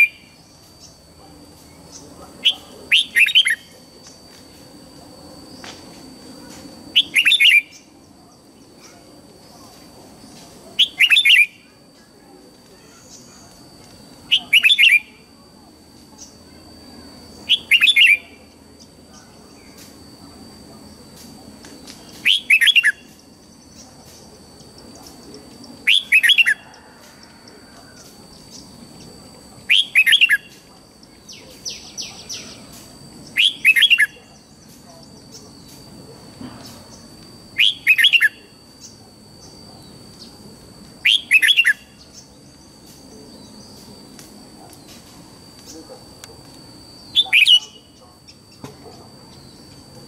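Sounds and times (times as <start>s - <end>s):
bulbul whistled song: 7.0s - 7.9s, 41.0s - 42.1s
faint rapid bird chatter: 29.7s - 35.8s.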